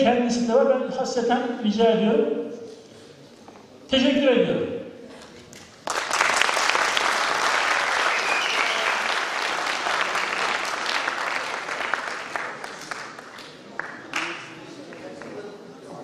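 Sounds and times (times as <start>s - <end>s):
audience applauding: 5.8s - 15.4s.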